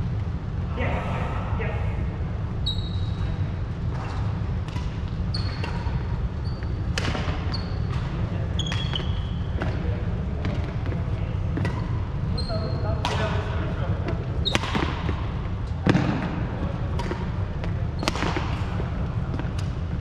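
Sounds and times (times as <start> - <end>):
steady low hum: 0.0 - 20.0
racket striking shuttlecock: 4.6 - 6.1, 6.9 - 8.1, 13.0 - 13.4, 14.4 - 15.2, 16.9 - 17.4, 18.0 - 18.7.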